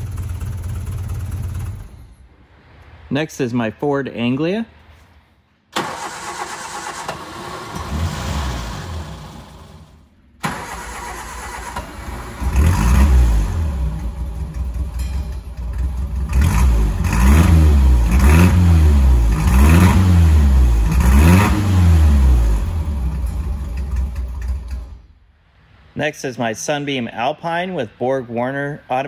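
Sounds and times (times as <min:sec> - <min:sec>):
car engine revving: 0:05.8 - 0:25.1.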